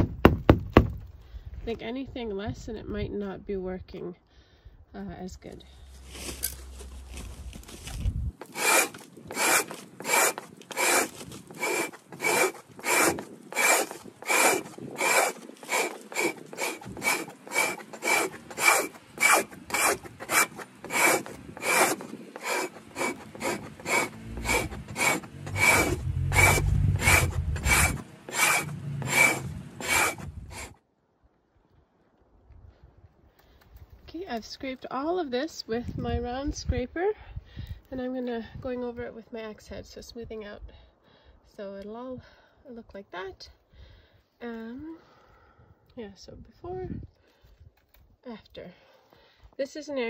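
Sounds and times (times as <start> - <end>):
scraper rasping on frozen hide: 5.8 - 30.8.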